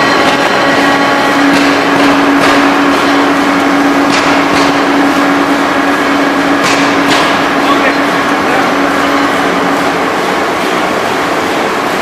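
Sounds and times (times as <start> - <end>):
sharp knocks: 0.0 - 5.1, 6.5 - 7.8
rolling machine running: 0.0 - 12.0.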